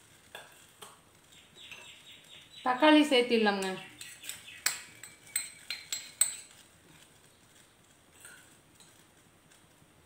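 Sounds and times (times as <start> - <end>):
steel spoon clinking bowl: 3.5 - 6.6.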